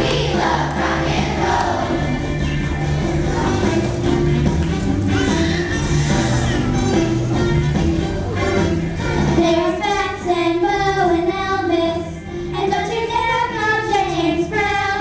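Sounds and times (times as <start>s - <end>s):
children singing rock and roll: 0.0s - 2.4s, 3.0s - 5.8s, 9.0s - 15.0s
instrumental accompaniment: 0.0s - 11.5s.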